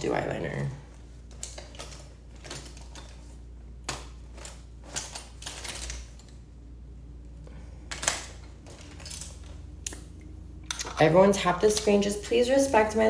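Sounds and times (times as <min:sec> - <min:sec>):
low steady hum: 0:00.0 - 0:13.0
clicks and rustles of small objects: 0:01.2 - 0:06.4, 0:07.8 - 0:10.1.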